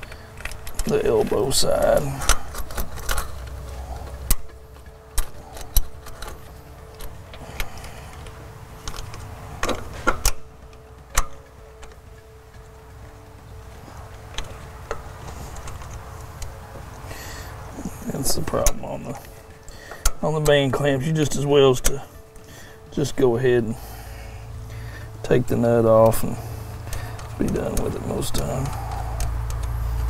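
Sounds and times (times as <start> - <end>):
faint steady hum: 0.0 - 30.0
metal clamp clicking: 2.2 - 12.7.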